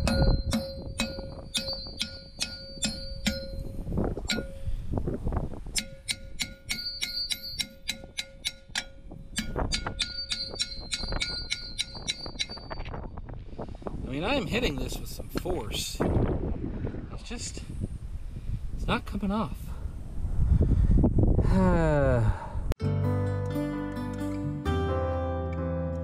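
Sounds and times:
hammer clanging on steel drum: 0:00.0 - 0:04.6, 0:05.8 - 0:12.8.

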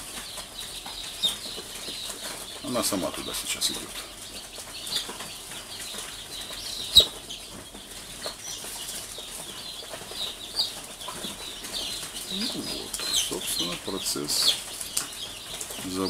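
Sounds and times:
chicks peeping: 0:00.0 - 0:16.0.

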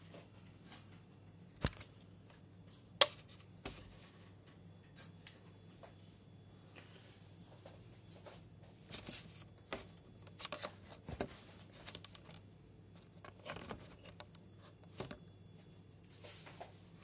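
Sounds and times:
handling clicks and rustles: 0:08.8 - 0:15.3.

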